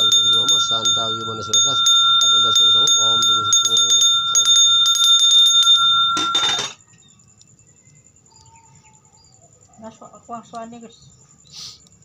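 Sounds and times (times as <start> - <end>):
hand bell ringing: 0.0 - 6.8.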